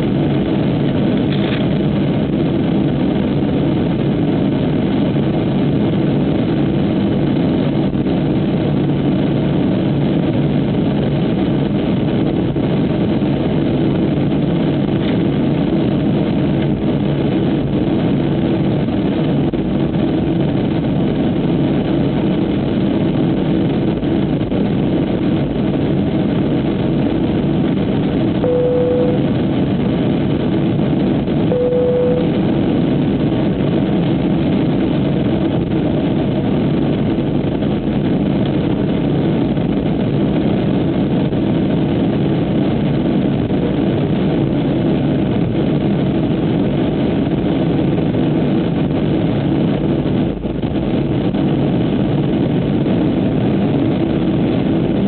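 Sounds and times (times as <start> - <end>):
jet engine cabin drone: 0.0 - 55.0
short tone: 28.4 - 29.4, 31.5 - 32.5.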